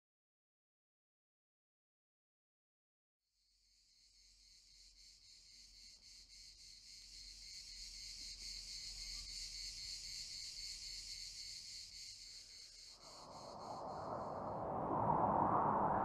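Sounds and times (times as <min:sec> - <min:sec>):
cicadas buzzing: 0:04.0 - 0:14.0.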